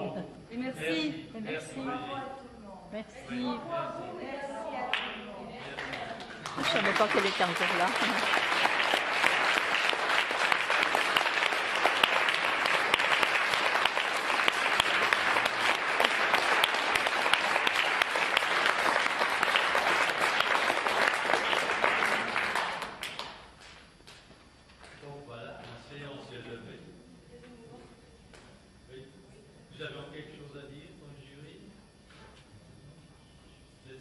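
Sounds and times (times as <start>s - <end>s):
audience applauding: 4.9s - 23.4s.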